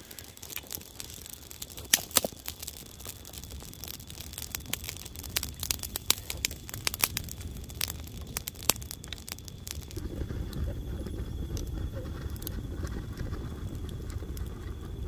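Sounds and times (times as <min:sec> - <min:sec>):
dry twigs snapping: 0:00.0 - 0:10.0.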